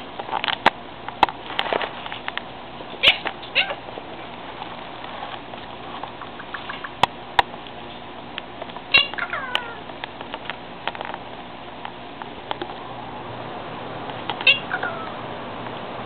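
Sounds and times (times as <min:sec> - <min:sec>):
parakeet talking in squeaky voice: 0:03.0 - 0:03.8, 0:08.9 - 0:09.8, 0:14.4 - 0:15.2.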